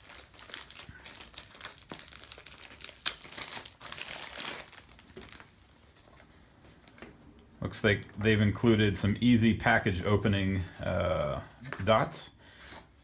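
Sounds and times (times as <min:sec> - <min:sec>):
plastic wrapping crinkling: 0:00.0 - 0:07.4.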